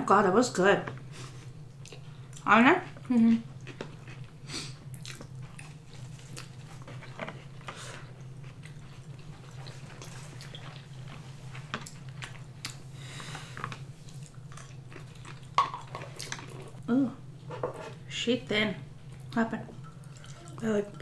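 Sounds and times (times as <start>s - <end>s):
steady low hum: 0.0s - 21.0s
chewing: 3.0s - 16.8s.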